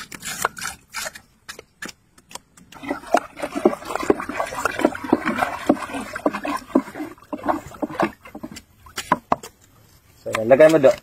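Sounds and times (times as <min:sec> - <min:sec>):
water sloshing in a bucket: 0:02.7 - 0:11.0.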